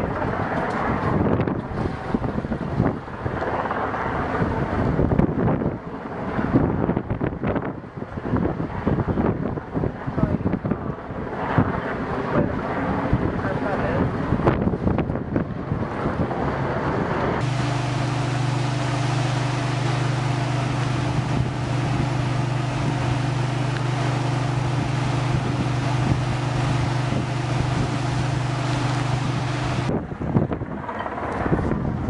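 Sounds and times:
wind noise on microphone: 0:00.0 - 0:32.0
motor engine droning: 0:15.6 - 0:32.0.

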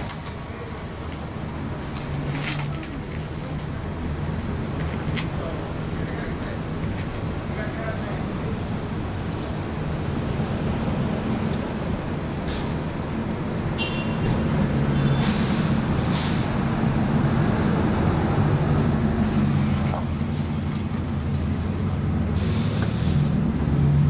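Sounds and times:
heavy vehicle engine rumble: 0:00.0 - 0:24.0
air hissing: 0:12.4 - 0:13.1, 0:15.2 - 0:16.6, 0:22.4 - 0:23.4.

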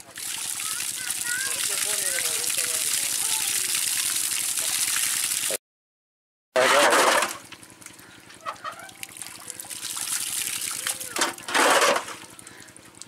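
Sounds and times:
water splashing into channel: 0:00.0 - 0:05.6, 0:08.6 - 0:13.0
water trickling: 0:00.0 - 0:05.6, 0:07.4 - 0:13.0.

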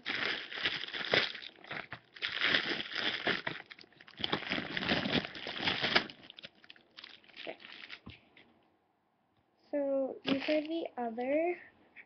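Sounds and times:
bag crinkling and rustling: 0:00.0 - 0:08.2, 0:10.3 - 0:10.8.

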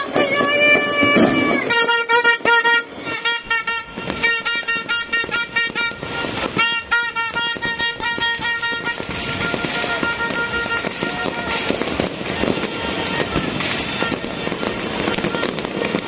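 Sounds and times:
party horn blowing: 0:00.0 - 0:16.0.

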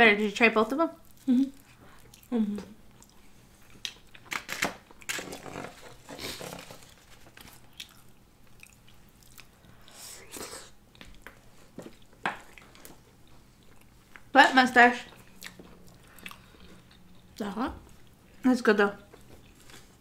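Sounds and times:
people chewing food: 0:01.0 - 0:18.4, 0:19.0 - 0:20.0.

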